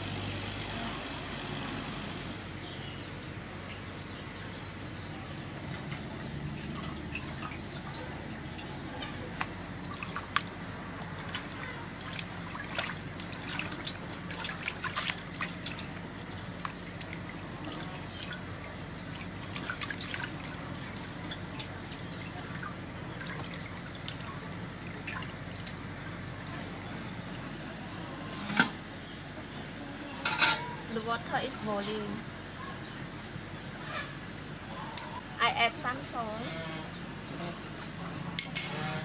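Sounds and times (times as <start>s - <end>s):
water splashing in metal basin: 5.6s - 27.2s.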